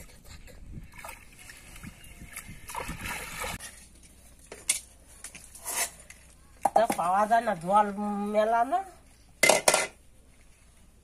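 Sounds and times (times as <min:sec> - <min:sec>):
water splashing and sloshing: 0:00.0 - 0:05.6.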